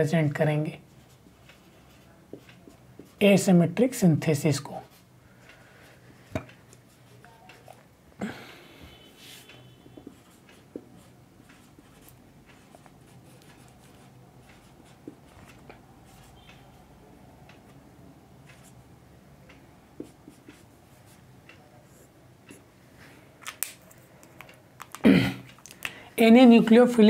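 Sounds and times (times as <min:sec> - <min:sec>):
marker scratching on whiteboard: 0:09.2 - 0:16.5, 0:20.0 - 0:21.2.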